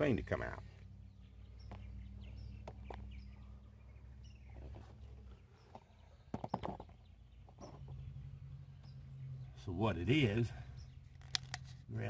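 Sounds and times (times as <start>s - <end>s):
birds chirping: 0.0s - 12.0s
plastic cap clicking: 11.2s - 11.7s.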